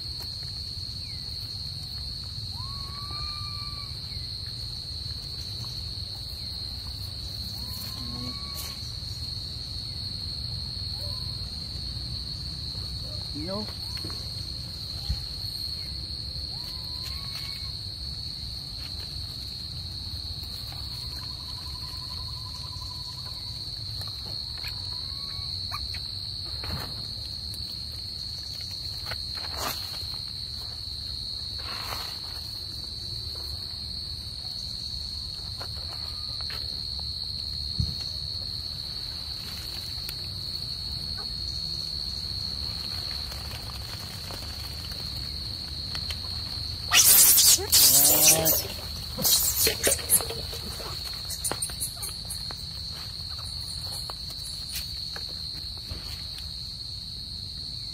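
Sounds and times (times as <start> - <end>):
insects droning: 0.0 - 57.9
faint whistle-like calls: 46.9 - 52.1.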